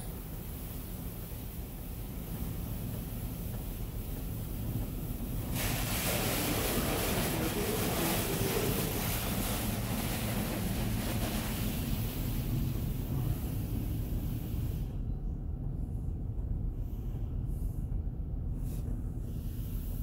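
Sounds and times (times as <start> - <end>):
water spray on metal body: 0.0 - 14.9
low rumble: 0.0 - 20.0.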